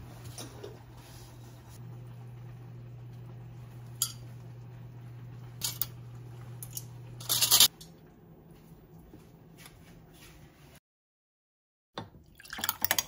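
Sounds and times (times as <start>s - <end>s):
low steady hum: 0.0s - 10.0s
metal tongs clinking on ceramic: 4.0s - 4.3s, 5.6s - 6.0s, 6.6s - 7.7s.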